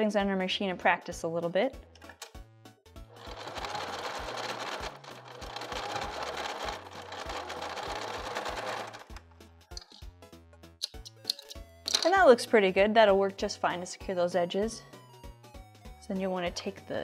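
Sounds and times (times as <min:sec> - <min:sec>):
sewing machine running: 0:03.1 - 0:09.1.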